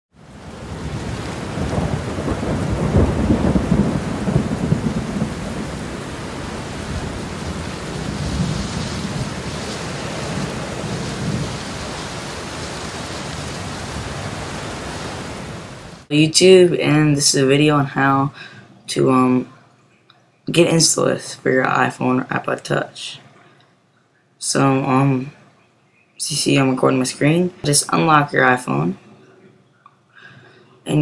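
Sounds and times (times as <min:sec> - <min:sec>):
hiss of rain: 0:00.2 - 0:16.1
thunder rumbling: 0:00.2 - 0:16.1.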